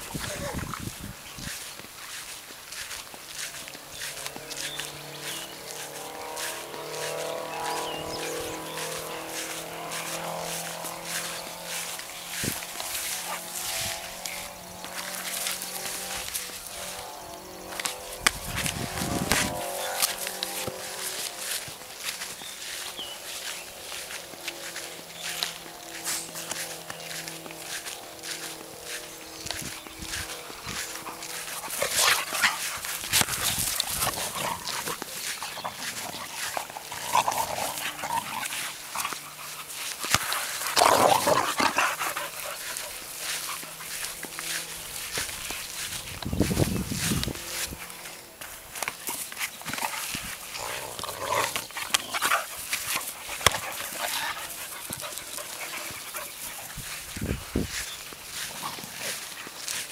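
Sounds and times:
dogs scuffling: 0.0s - 59.9s
dogs vocalizing: 30.0s - 45.8s, 48.8s - 59.9s.

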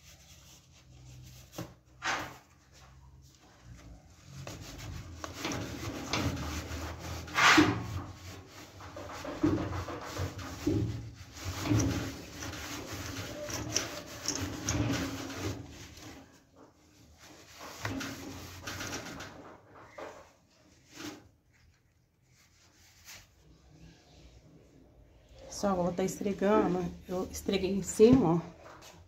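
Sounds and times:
steel wool scrubbing metal: 4.3s - 16.4s.

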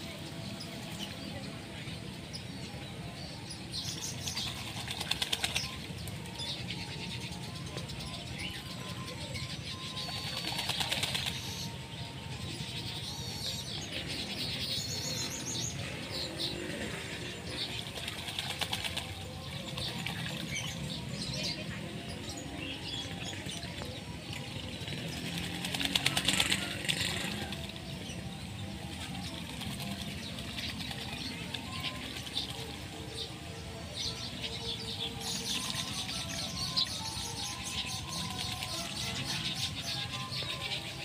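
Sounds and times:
ducks splashing in water: 4.3s - 6.3s, 10.0s - 11.6s, 16.8s - 20.5s, 24.4s - 27.8s
wings flapping: 4.4s - 5.8s, 10.2s - 11.6s, 25.2s - 27.8s.

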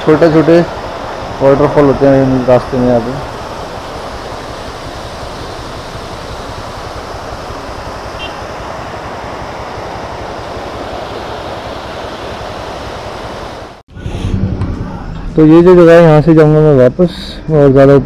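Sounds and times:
waterfall splashing onto rocks: 0.2s - 8.7s.

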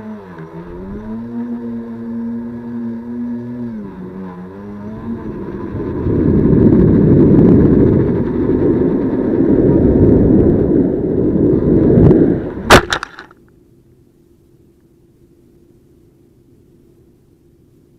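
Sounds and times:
faint hum: 0.0s - 17.9s
rough rumbling and rustling: 0.5s - 13.4s
sharp clack: 12.7s - 13.4s.

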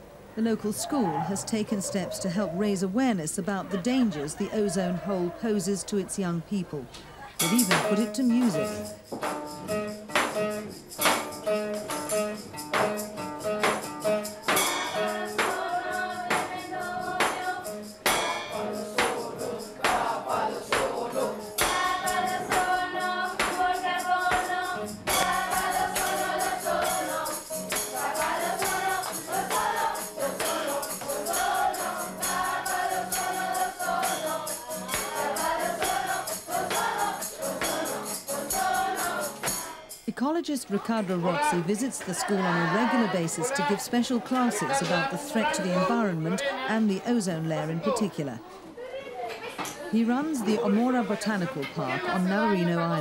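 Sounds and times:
group of voices singing: 0.4s - 9.0s, 14.4s - 40.0s, 40.7s - 48.4s, 50.0s - 53.0s
strummed acoustic guitar: 7.4s - 39.8s
tambourine shaken: 7.4s - 46.1s
maracas: 7.4s - 47.7s
egg shaker: 21.8s - 39.8s.

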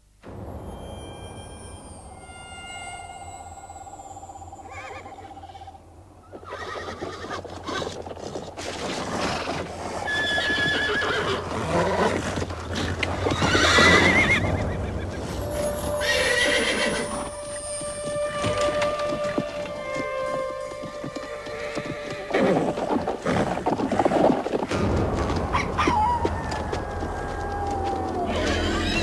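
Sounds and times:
eerie music: 0.0s - 6.3s, 12.6s - 29.0s
horses neighing: 4.7s - 15.0s, 16.0s - 17.3s, 18.3s - 24.9s, 25.8s - 29.0s.

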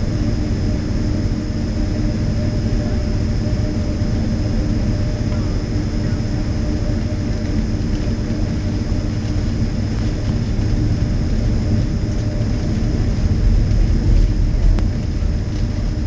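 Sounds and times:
aircraft engine hum: 0.0s - 16.0s
aircraft rolling rumble: 0.0s - 16.0s.

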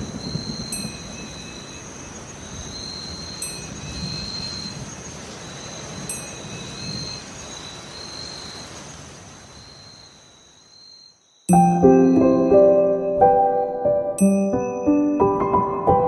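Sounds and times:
steady rain-like hiss: 0.0s - 16.0s
high chime-like notes: 3.4s - 3.8s, 6.1s - 6.4s, 11.5s - 15.8s.

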